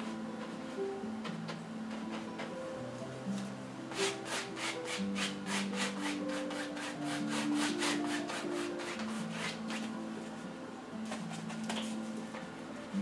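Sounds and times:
soft background music: 0.0s - 13.0s
brush scrubbing paint on canvas: 4.0s - 9.6s.

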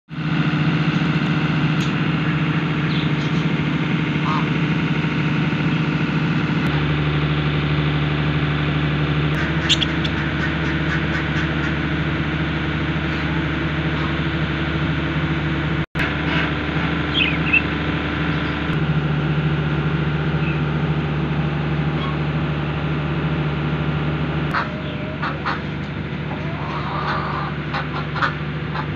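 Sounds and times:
motor humming: 0.1s - 28.9s
small bird chirps: 9.4s - 10.3s, 17.1s - 17.7s.

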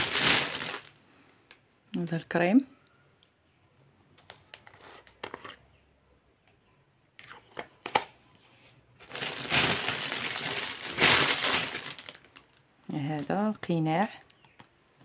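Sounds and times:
plastic wrapping crinkling: 0.0s - 1.0s, 9.0s - 12.6s.

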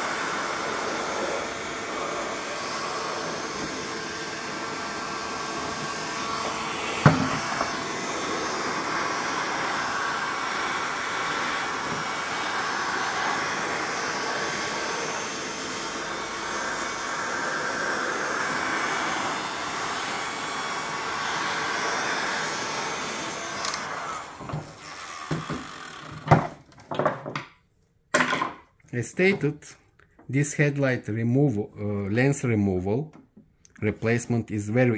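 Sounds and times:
heat gun blowing: 0.0s - 26.3s.

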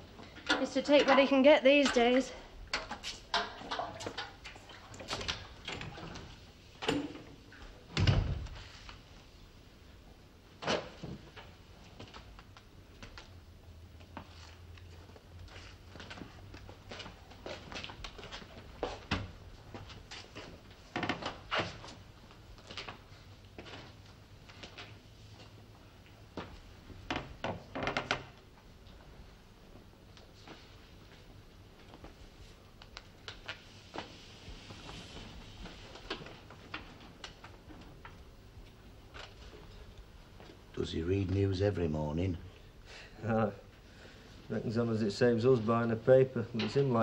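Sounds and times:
wooden chair creaking: 27.1s - 28.4s.

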